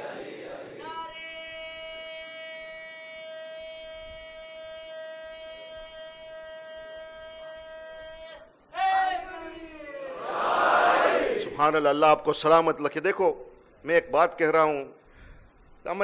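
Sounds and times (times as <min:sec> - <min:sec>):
crowd chanting: 0:00.0 - 0:01.0, 0:10.1 - 0:11.6.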